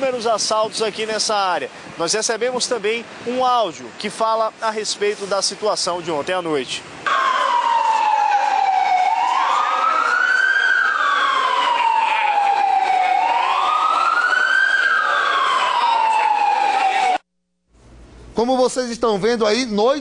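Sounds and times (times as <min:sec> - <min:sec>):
emergency siren wailing: 0:07.0 - 0:17.2.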